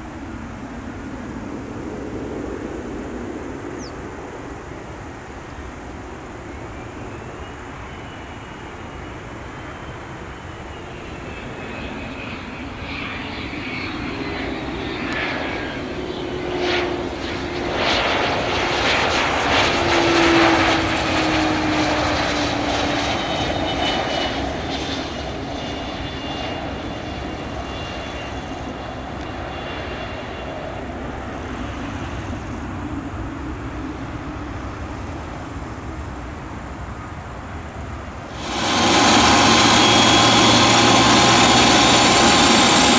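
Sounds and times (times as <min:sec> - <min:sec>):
jet engine whine passing: 0:00.0 - 0:37.3, 0:38.0 - 0:42.9.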